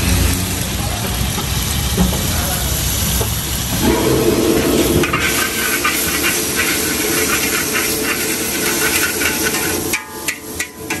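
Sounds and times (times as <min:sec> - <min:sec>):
noodles sizzling in a wok: 0:00.0 - 0:11.0
ladle scraping and knocking wok: 0:03.2 - 0:11.0.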